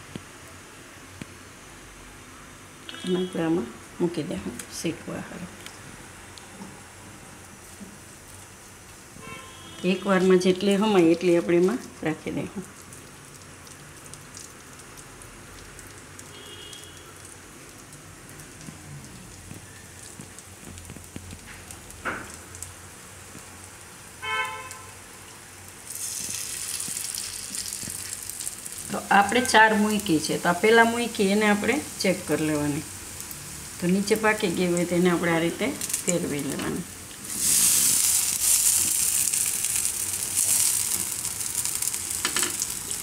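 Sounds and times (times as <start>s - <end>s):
patty sizzling in oil: 7.4s - 43.0s.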